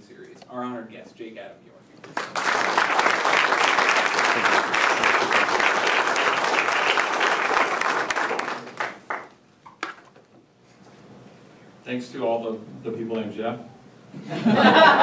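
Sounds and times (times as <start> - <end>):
audience applauding: 2.0 - 9.3.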